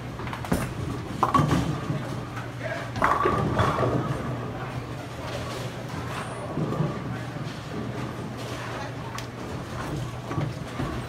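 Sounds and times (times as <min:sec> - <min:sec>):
bowling pins clattering: 0:00.1 - 0:11.0
bowling ball rolling: 0:00.2 - 0:11.0
background chatter: 0:03.7 - 0:09.7.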